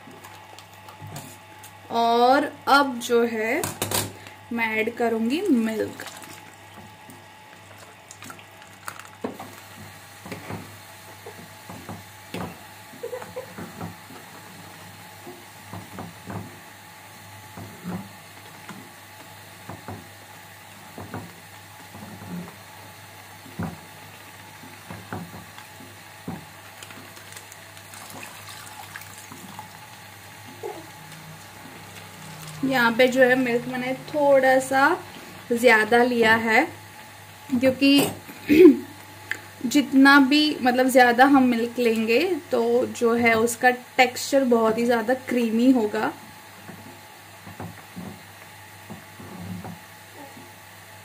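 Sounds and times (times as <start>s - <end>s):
milk pouring: 5.8s - 9.8s, 26.3s - 32.8s.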